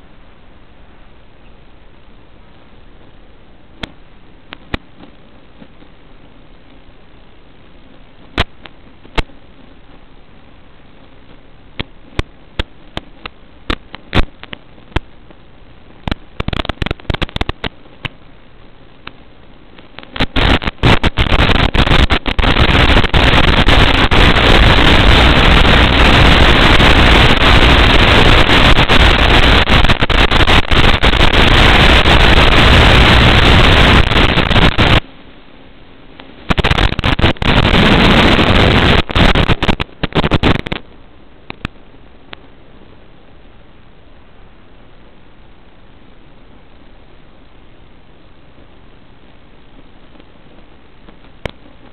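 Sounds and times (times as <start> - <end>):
loud static hiss: 0.0 - 51.9
crackling clicks: 3.8 - 6.9, 7.8 - 10.1, 11.0 - 18.3, 19.0 - 35.1, 36.1 - 42.6, 48.6 - 51.9.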